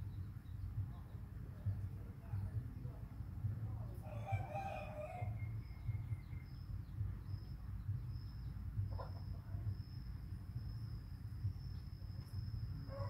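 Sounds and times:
low hum: 5.3 - 13.0.

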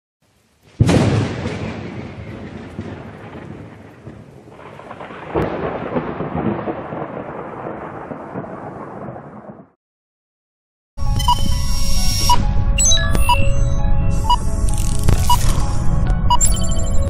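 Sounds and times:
rolling thunder: 0.7 - 9.8
sharp thunder crack: 0.7 - 9.8.

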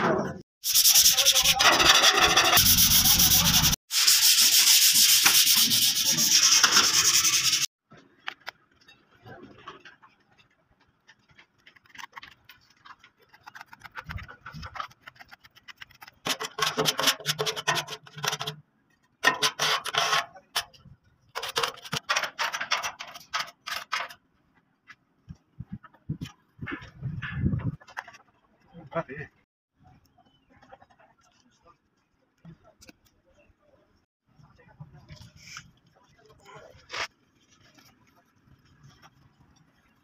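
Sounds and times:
sandpaper scrubbing metal: 0.6 - 7.7, 13.4 - 18.6, 19.2 - 20.7.

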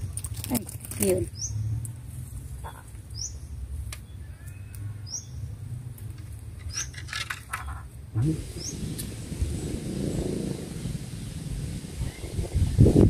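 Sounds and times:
small bird chirping: 1.0 - 1.7
low wind rumble: 7.8 - 13.0.

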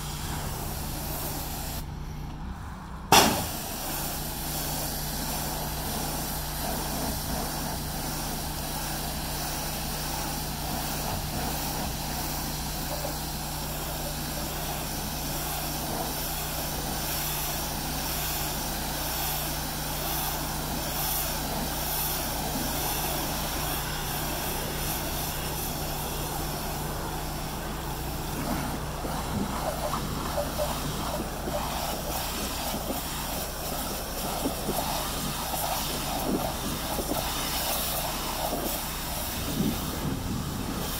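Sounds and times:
water spray hiss: 0.0 - 1.9, 3.1 - 40.9
pressure washer drone: 0.0 - 2.4, 3.0 - 40.9.

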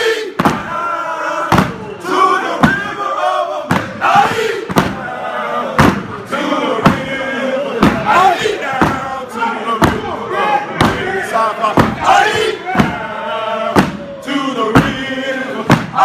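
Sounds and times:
group chanting and shouting: 0.0 - 16.0
feet stomping on floor: 1.5 - 1.8, 3.7 - 5.0, 5.8 - 6.1, 7.8 - 9.1, 9.8 - 10.1, 11.8 - 13.0, 13.8 - 14.1, 15.7 - 16.0.

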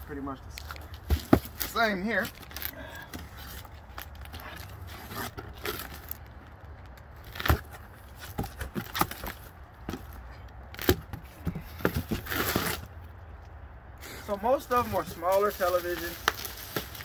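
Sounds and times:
box cutter slicing tape: 12.1 - 12.9.

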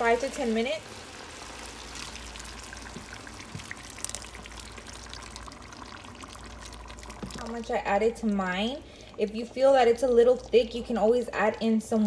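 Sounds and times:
thick sauce pouring into pot: 0.8 - 11.2
small ticks and splatters: 1.8 - 7.6.

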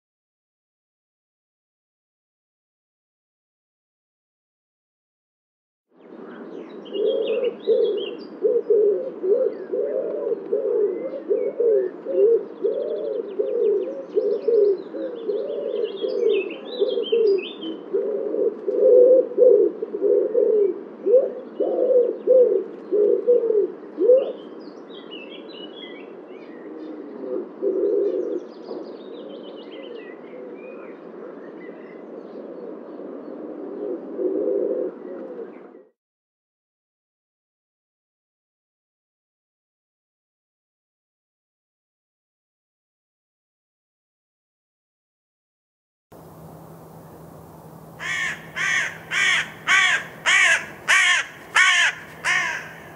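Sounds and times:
wood pigeon cooing: 6.4 - 24.6, 26.4 - 35.9, 48.0 - 52.9
small birds chirping: 46.2 - 52.9.

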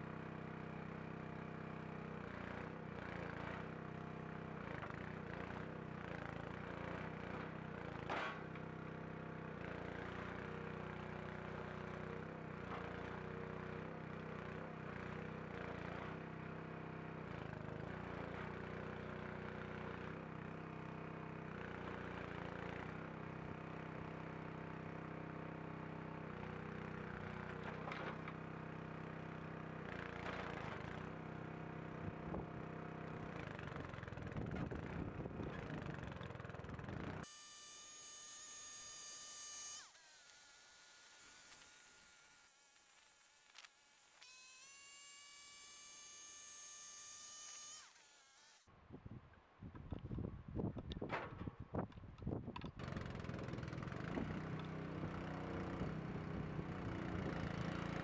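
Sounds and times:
sawmill engine running: 23.6 - 48.7, 52.6 - 58.0.

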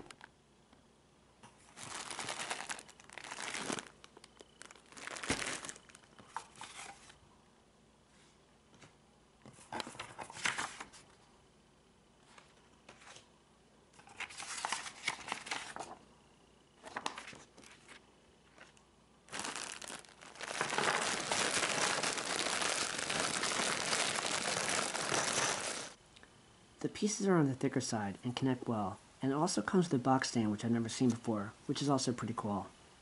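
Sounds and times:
plastic bag crinkling: 1.6 - 7.0, 19.3 - 26.0
paper and cardboard rustling: 4.6 - 7.2, 14.0 - 16.0, 19.3 - 26.0.

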